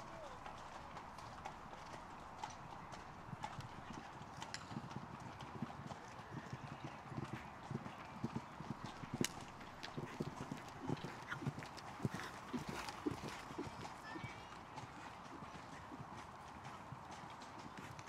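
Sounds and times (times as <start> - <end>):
hoofbeats on sand: 4.4 - 18.0.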